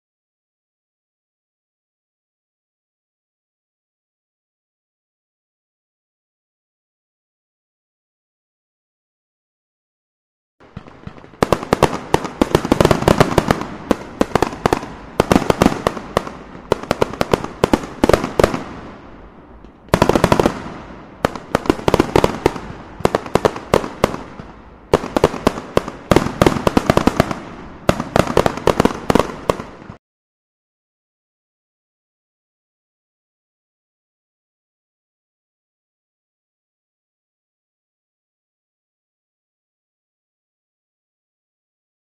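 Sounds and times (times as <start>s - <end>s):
fireworks bangs and crackles: 10.6s - 30.0s.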